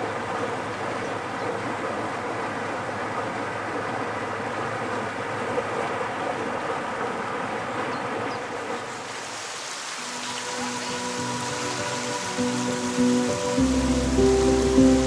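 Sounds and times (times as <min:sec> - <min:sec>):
boat engine buzzing hum: 0:00.0 - 0:08.8, 0:10.4 - 0:15.0
soft music: 0:10.0 - 0:15.0.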